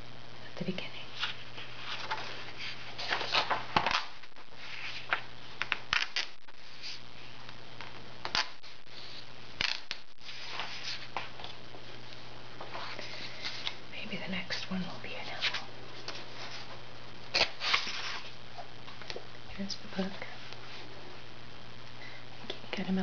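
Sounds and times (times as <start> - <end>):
faint low hum: 0.0 - 23.0
paper rustling and crackling: 1.2 - 11.6, 12.6 - 13.8, 15.3 - 18.4
sharp paper snaps: 5.1 - 6.4, 8.2 - 8.6, 9.6 - 10.0.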